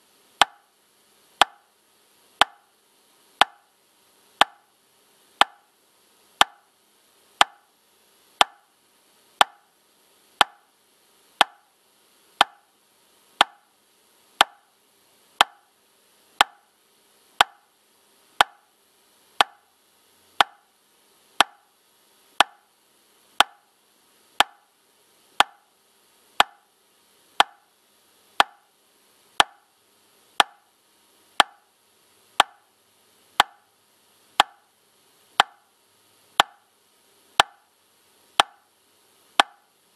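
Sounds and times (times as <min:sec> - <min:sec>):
metronome clicking: 0:00.4 - 0:00.6, 0:08.4 - 0:08.6, 0:11.4 - 0:11.6, 0:14.4 - 0:14.6, 0:19.4 - 0:19.6, 0:28.4 - 0:28.6, 0:32.4 - 0:32.6, 0:33.4 - 0:33.6, 0:34.4 - 0:34.6, 0:35.4 - 0:35.6, 0:38.4 - 0:38.6, 0:39.4 - 0:39.6.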